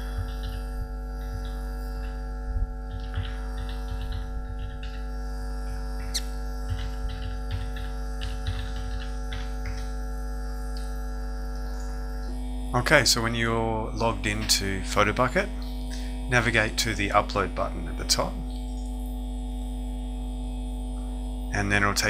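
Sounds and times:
computer keyboard typing: 0.0 - 2.2, 2.8 - 10.0
electrical hum: 0.0 - 22.0.

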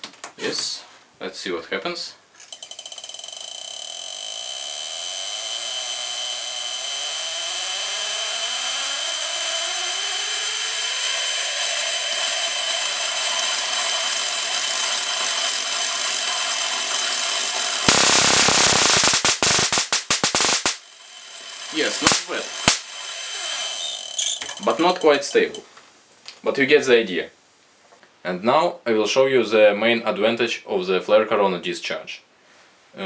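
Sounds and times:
high-pitched electrical whine and hiss: 2.5 - 25.7
buzzing spark discharge snapping: 3.9 - 25.6.

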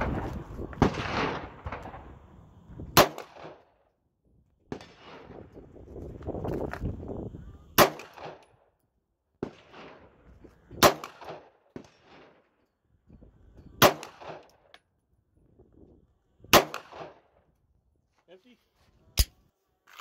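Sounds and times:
pistol shots with echo: 3.0 - 3.6, 7.8 - 8.5, 10.8 - 12.4, 13.8 - 14.5, 16.5 - 17.2.

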